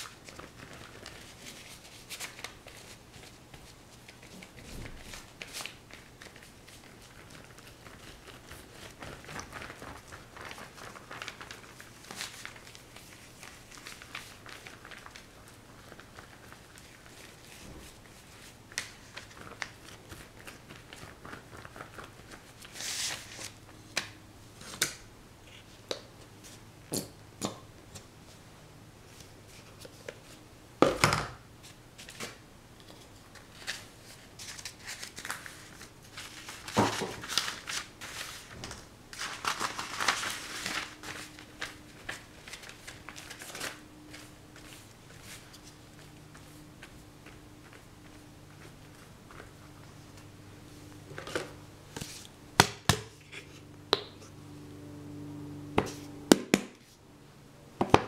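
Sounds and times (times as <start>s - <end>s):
paper rustling: 0.0s - 24.8s, 31.6s - 50.3s.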